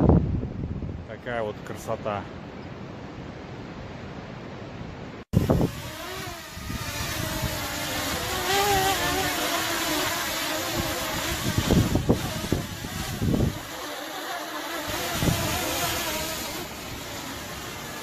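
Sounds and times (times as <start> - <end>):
wind on microphone: 0.0 - 1.1, 5.4 - 14.0, 14.8 - 18.0
drone propellers buzzing: 5.4 - 18.0.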